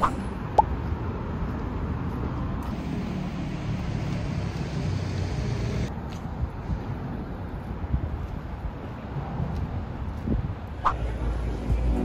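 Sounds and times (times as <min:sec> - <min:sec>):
cars driving past: 0:00.0 - 0:05.9.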